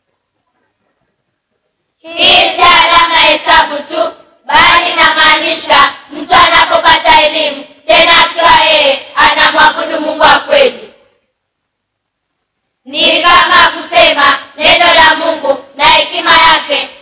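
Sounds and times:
children singing: 0:02.0 - 0:11.0, 0:12.9 - 0:17.0.

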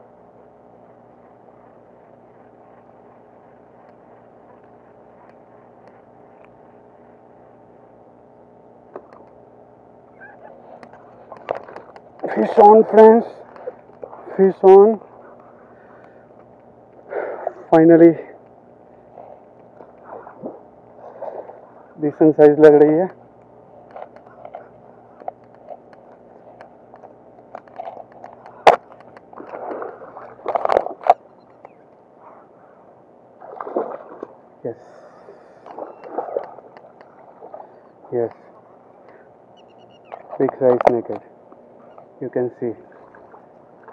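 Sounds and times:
distant engine hum: 0:00.0 - 0:43.9
fish splashing in water: 0:27.8 - 0:31.7, 0:33.4 - 0:39.1.

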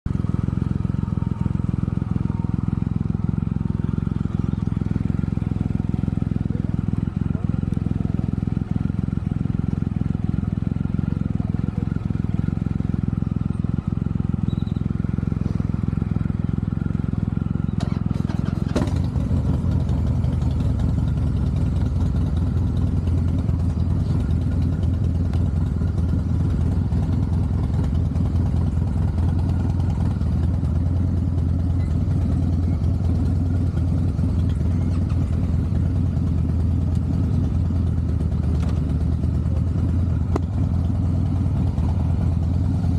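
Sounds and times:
motorcycle engine running: 0:00.0 - 0:42.9.

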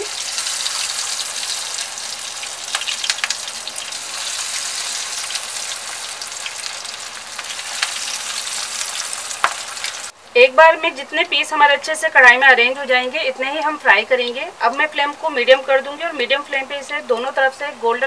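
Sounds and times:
meat sizzling in oil: 0:00.0 - 0:10.2
oil crackling and popping: 0:00.0 - 0:10.2.

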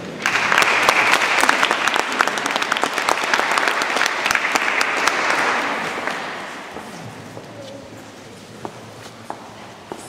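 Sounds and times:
children applauding: 0:00.2 - 0:06.5.

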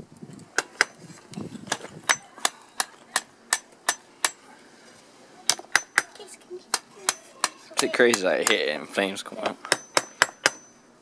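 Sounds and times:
hammer striking hot steel on anvil: 0:02.1 - 0:04.4, 0:05.5 - 0:06.1, 0:09.7 - 0:10.8.

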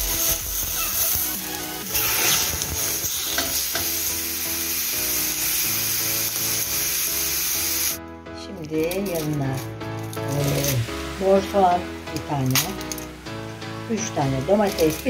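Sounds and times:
meat sizzling in a pan: 0:00.0 - 0:08.0, 0:09.1 - 0:15.0.

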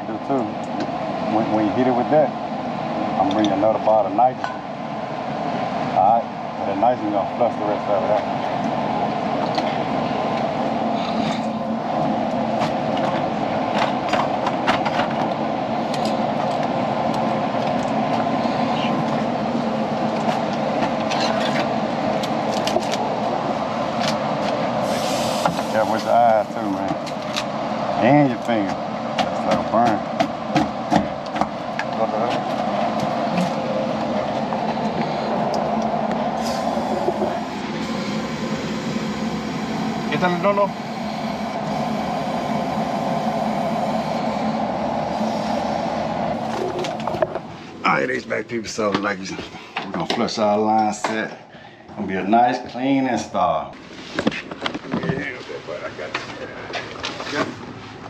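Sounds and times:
gas hissing through pipes: 0:00.0 - 0:48.6
gas rushing through a line: 0:24.7 - 0:26.8, 0:34.8 - 0:47.8.

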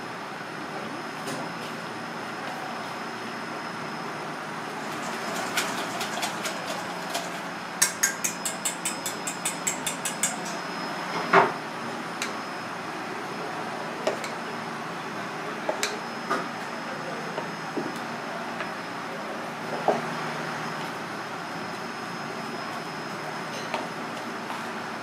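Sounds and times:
wire whisk clicking in metal bowl: 0:07.8 - 0:10.6.

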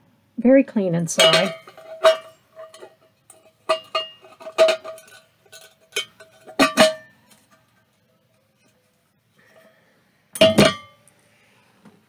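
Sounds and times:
enamel coffee pot clinking: 0:01.1 - 0:08.9, 0:10.4 - 0:11.0.

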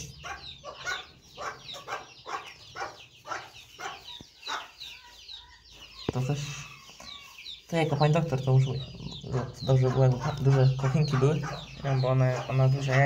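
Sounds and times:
chicken clucking: 0:00.0 - 0:13.0.

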